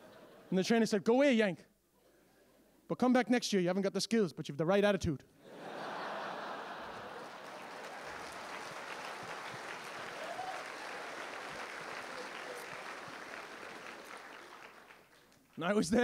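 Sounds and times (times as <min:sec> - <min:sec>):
audience applauding: 0:05.9 - 0:16.0.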